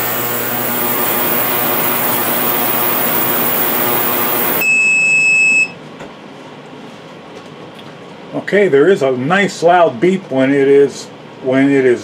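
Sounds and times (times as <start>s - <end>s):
ultrasonic cleaner buzzing hiss: 0.0s - 4.6s
loud steady beep: 3.0s - 5.8s.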